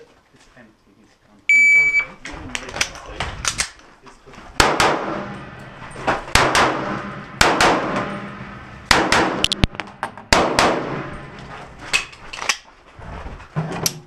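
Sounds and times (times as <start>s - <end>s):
pistol shots: 4.6s - 5.6s, 6.2s - 11.4s.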